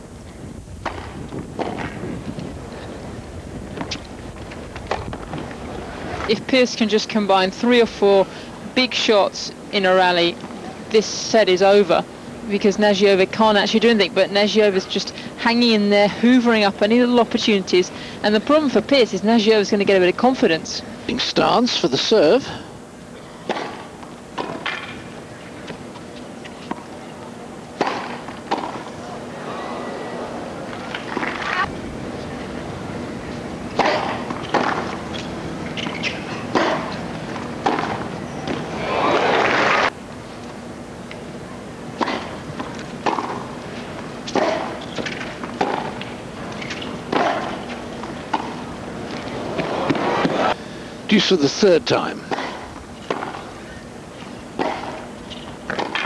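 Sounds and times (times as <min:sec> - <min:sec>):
crowd murmur: 0:05.3 - 0:06.3, 0:25.2 - 0:39.9, 0:46.3 - 0:50.7
tennis ball bouncing on court: 0:27.8 - 0:28.8, 0:33.8 - 0:38.7, 0:42.0 - 0:43.5, 0:44.3 - 0:50.4, 0:52.3 - 0:53.4, 0:54.6 - 0:56.0.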